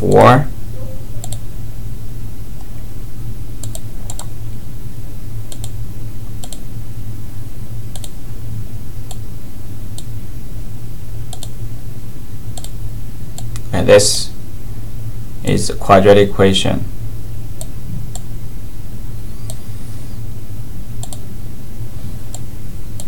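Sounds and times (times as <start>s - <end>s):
steady low hum: 0.0s - 23.0s
computer mouse clicks: 1.2s - 1.4s, 3.6s - 4.3s, 5.5s - 5.8s, 6.4s - 6.6s, 7.9s - 8.2s, 11.3s - 11.5s, 12.6s - 12.8s, 19.4s - 19.6s, 21.0s - 21.2s.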